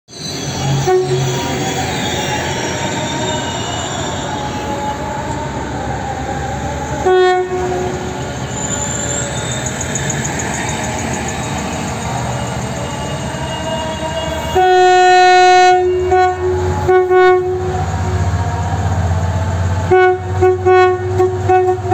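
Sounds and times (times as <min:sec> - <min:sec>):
thin high squeal: 0:00.1 - 0:05.0, 0:08.3 - 0:14.6
diesel locomotive running: 0:00.1 - 0:21.9
locomotive horn blast: 0:00.6 - 0:01.6, 0:07.0 - 0:08.6, 0:12.9 - 0:18.4, 0:19.8 - 0:21.9.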